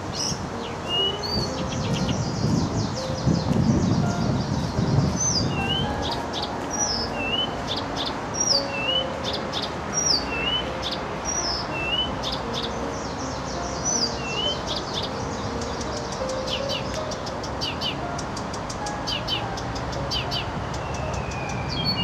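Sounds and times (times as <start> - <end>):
reed warbler singing: 0.0 - 22.0.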